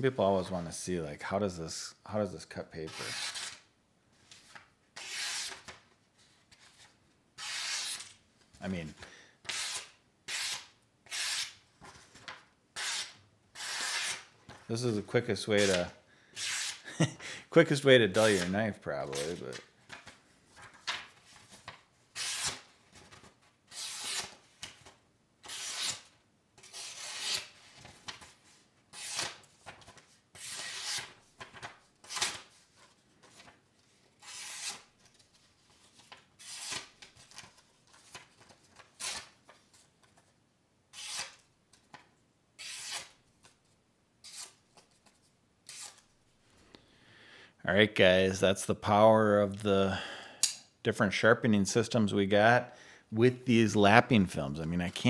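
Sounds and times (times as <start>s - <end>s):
knife slicing paper: 2.9s - 3.6s, 5.0s - 5.8s, 7.4s - 8.1s, 12.8s - 14.3s, 18.2s - 19.4s, 22.1s - 22.7s, 23.7s - 24.4s, 25.4s - 27.6s, 28.9s - 32.5s, 34.2s - 34.9s, 36.0s - 37.4s, 40.9s - 41.4s, 42.6s - 43.2s, 44.2s - 44.6s, 45.7s - 46.0s
paper rustling: 18.2s - 25.0s, 27.1s - 40.4s.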